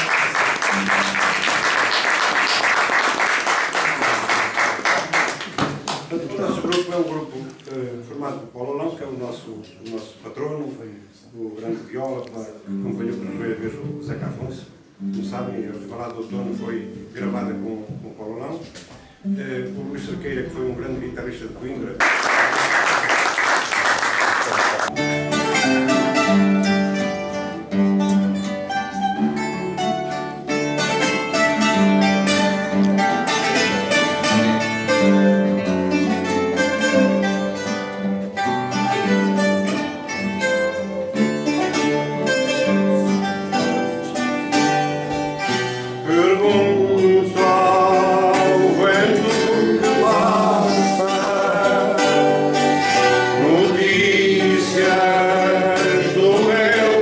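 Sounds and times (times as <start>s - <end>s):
two guitars playing: 0.0s - 4.8s, 11.8s - 18.1s, 18.7s - 22.0s, 24.7s - 57.0s
applause: 0.0s - 6.2s, 22.0s - 24.9s
man singing: 46.0s - 57.0s.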